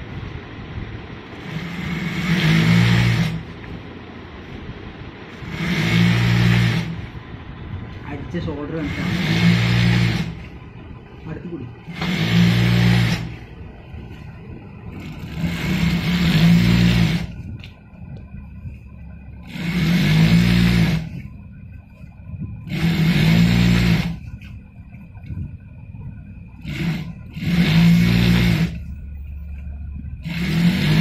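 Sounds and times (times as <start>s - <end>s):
steady motor hum: 0.0s - 31.0s
industrial sewing machine stitching: 1.3s - 3.5s, 5.4s - 7.1s, 8.7s - 10.5s, 11.8s - 13.4s, 15.0s - 17.3s, 19.4s - 21.1s, 22.6s - 24.2s, 26.6s - 28.8s, 30.2s - 31.0s.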